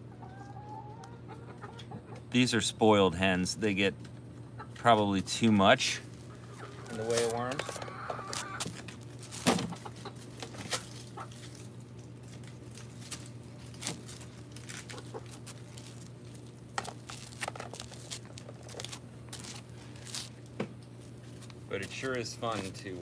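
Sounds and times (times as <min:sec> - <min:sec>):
hens clucking softly: 0:00.0 - 0:02.4, 0:04.4 - 0:04.8, 0:06.2 - 0:08.7, 0:09.7 - 0:11.8, 0:14.8 - 0:15.4
faint steady hum: 0:00.0 - 0:23.0
pecks and scratches on dry leaves: 0:05.4 - 0:23.0.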